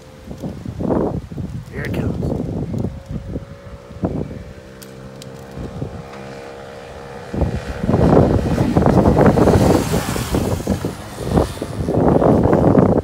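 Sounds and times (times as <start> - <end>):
wind rumble on microphone: 0.0 - 13.0
mini bike engine passing: 2.9 - 13.0.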